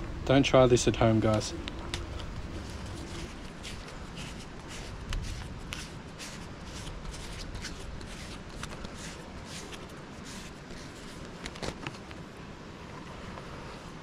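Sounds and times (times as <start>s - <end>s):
crunching and rustling clicks: 1.2s - 12.2s.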